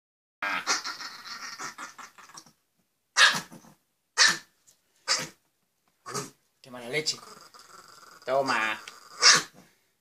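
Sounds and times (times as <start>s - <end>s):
small dog barking sharply: 3.2s - 3.5s, 4.2s - 4.4s, 9.2s - 9.5s
small dog snarling: 5.1s - 5.4s, 6.0s - 9.7s.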